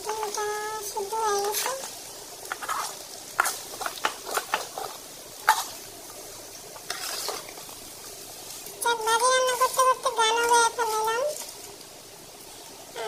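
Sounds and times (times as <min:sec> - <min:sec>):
food sizzling in pan: 0:00.0 - 0:13.0
metal spatula scraping frying pan: 0:02.4 - 0:05.8, 0:06.9 - 0:07.6.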